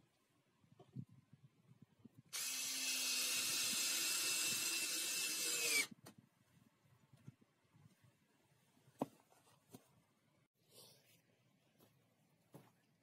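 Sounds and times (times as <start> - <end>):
cordless drill driving a screw: 2.4 - 5.9.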